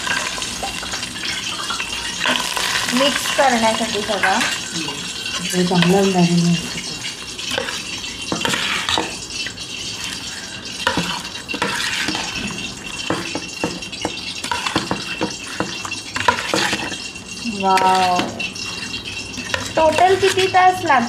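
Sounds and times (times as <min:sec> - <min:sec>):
spoon scraping metal bowl: 0:01.4 - 0:21.0
wet marinade squelching: 0:14.5 - 0:21.0.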